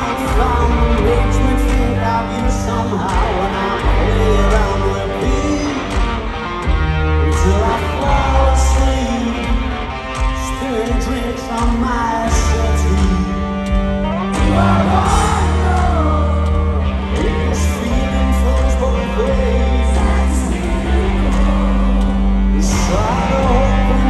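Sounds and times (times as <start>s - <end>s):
person singing: 0.0s - 6.1s, 10.4s - 24.0s
rock band playing live: 0.0s - 24.0s.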